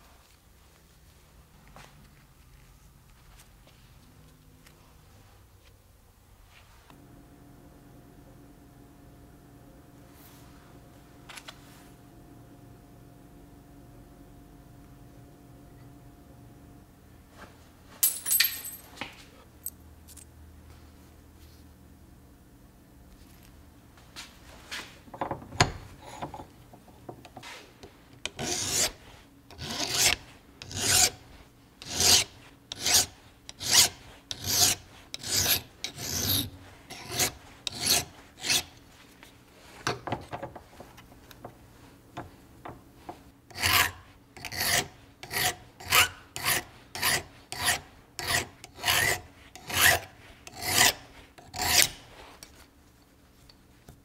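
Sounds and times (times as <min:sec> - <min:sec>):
hand file rasping on metal: 0:28.2 - 0:31.2, 0:31.8 - 0:38.8, 0:43.5 - 0:52.1.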